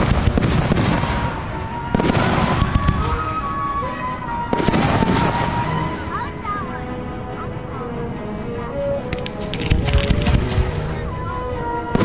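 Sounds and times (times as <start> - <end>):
fireworks bangs: 0.0 - 3.7, 4.3 - 6.0, 9.1 - 12.0
crackling rumble: 0.0 - 12.0.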